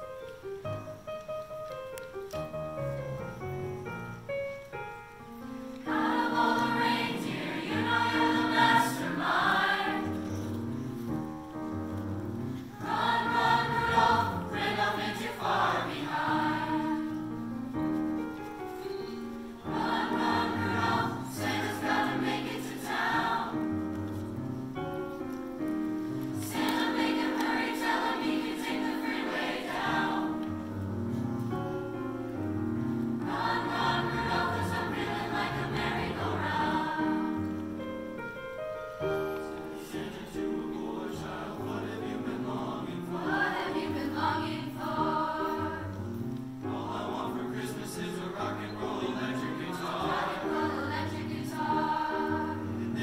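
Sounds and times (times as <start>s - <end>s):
mixed choir singing: 5.8s - 10.6s, 12.7s - 17.6s, 19.6s - 24.0s, 26.4s - 30.9s, 32.9s - 37.8s, 39.4s - 53.0s.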